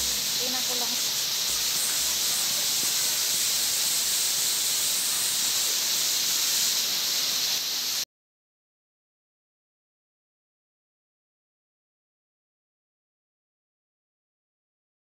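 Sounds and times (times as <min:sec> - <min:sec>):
waterfall rushing: 0:00.0 - 0:08.0.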